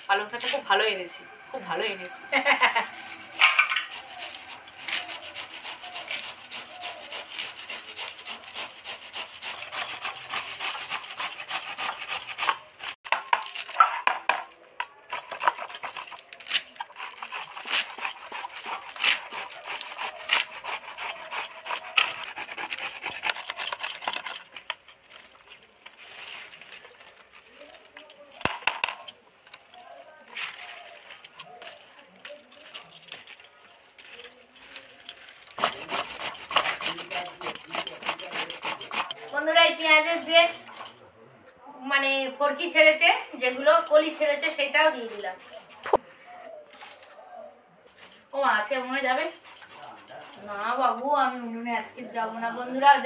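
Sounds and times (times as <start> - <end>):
radish grated on steel grater: 2.4 - 13.0, 15.1 - 25.3, 35.4 - 41.0, 48.8 - 50.8
leaves sliced on a blade: 2.7 - 14.0, 15.0 - 29.1, 30.3 - 39.3.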